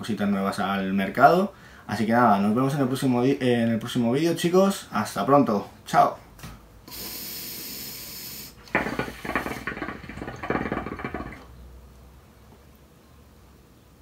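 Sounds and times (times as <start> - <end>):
high hiss: 6.8 - 11.5
hookah water bubbling: 6.9 - 11.6.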